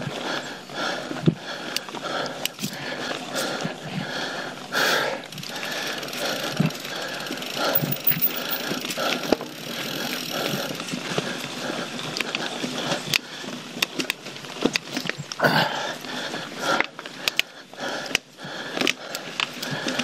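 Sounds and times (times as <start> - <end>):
bike tyre noise over rock: 0.0 - 20.0
chain and frame rattling: 5.3 - 11.1.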